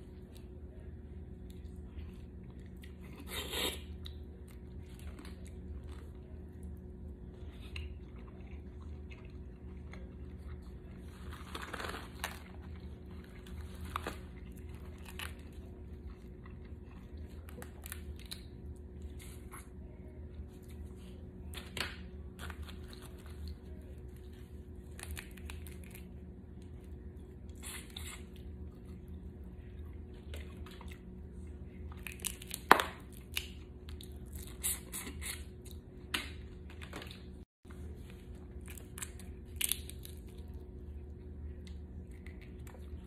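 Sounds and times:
sucking and chewing: 0:00.0 - 0:21.6, 0:22.2 - 0:43.0
shells cracking and tearing: 0:38.6 - 0:40.4.

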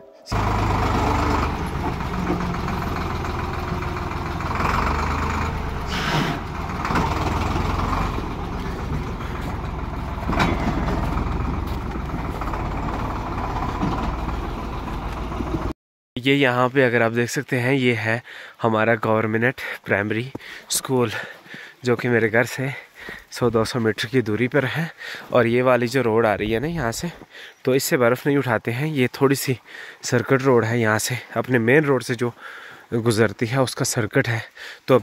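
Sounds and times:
tractor engine running: 0:00.3 - 0:15.8, 0:26.2 - 0:27.3.

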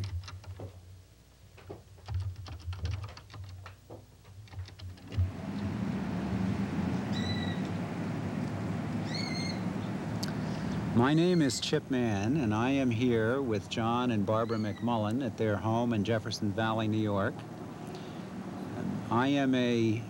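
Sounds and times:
keyboard keys clicking: 0:00.0 - 0:00.6, 0:02.0 - 0:03.7, 0:04.5 - 0:05.2
low hum: 0:05.2 - 0:14.4
short high arched calls: 0:07.1 - 0:07.7, 0:09.0 - 0:09.8.

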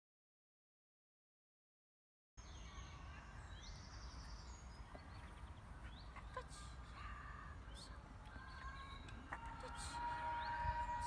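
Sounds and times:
small birds chirping: 0:02.4 - 0:11.0.

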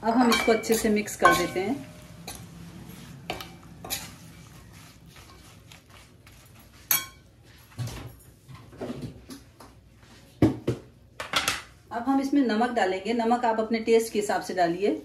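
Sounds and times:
metal spoon scraping metal pan: 0:00.2 - 0:07.3.

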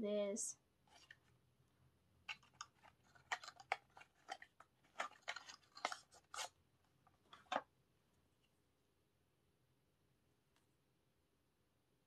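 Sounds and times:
cardboard box crinkling: 0:02.3 - 0:06.6.

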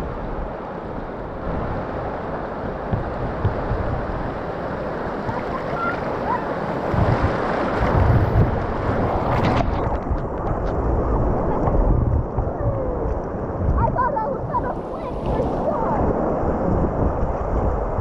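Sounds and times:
whitewater rushing: 0:00.0 - 0:18.0
wind buffeting microphone: 0:00.0 - 0:18.0.

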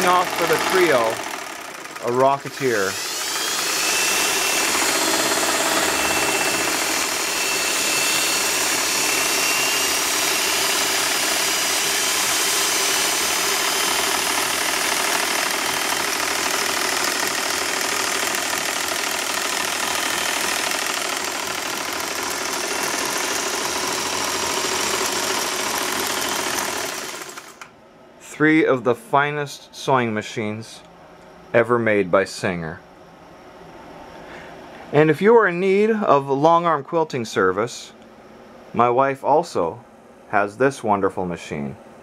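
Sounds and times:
sewing machines whirring: 0:00.0 - 0:27.7
thin high whine: 0:05.7 - 0:13.9.

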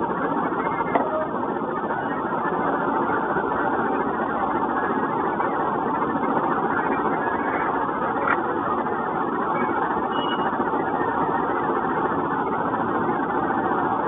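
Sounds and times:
steady mechanical noise: 0:00.0 - 0:14.0.

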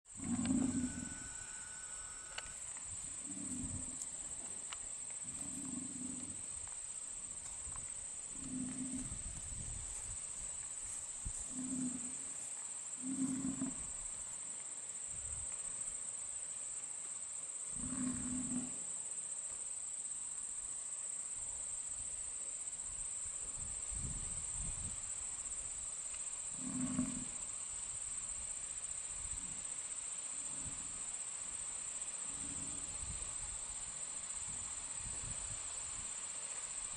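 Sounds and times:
crickets trilling: 0:00.1 - 0:36.9
bison grunting: 0:00.2 - 0:01.3, 0:03.2 - 0:04.0, 0:05.3 - 0:06.4, 0:08.4 - 0:09.2, 0:26.6 - 0:27.4.

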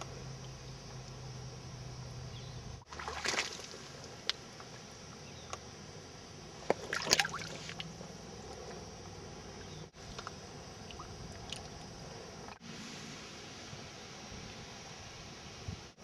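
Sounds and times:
water sloshing and splashing: 0:02.8 - 0:05.0, 0:06.6 - 0:12.6.

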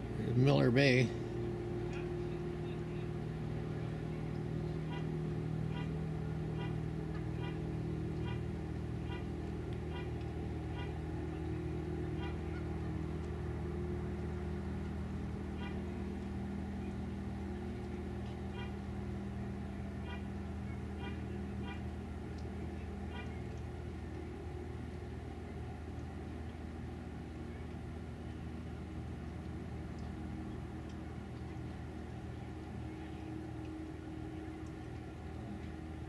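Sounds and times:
motorboat engine humming: 0:00.0 - 0:36.0.

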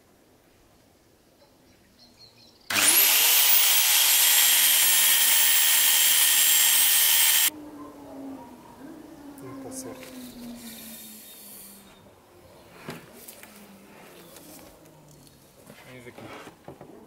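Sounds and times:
electric power tool whining: 0:02.7 - 0:07.5.

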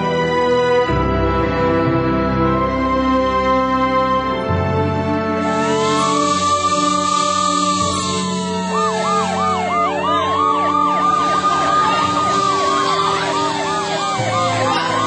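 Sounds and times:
siren slow wail: 0:05.1 - 0:15.0
siren fast yelp: 0:05.4 - 0:15.0.

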